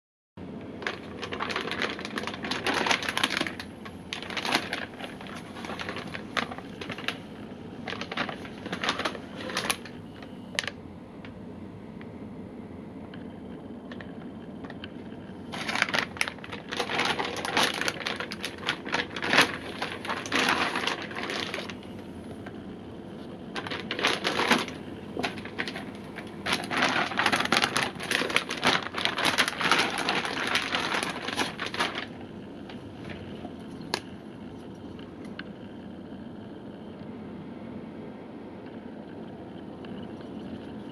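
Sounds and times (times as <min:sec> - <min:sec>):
plastic bag crinkling: 0:00.8 - 0:10.8, 0:13.8 - 0:35.6.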